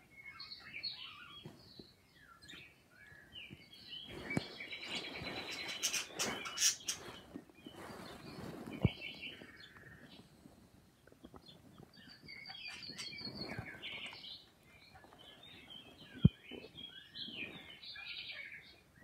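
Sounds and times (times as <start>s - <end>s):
budgerigars chirping: 4.0s - 7.2s, 12.0s - 18.7s.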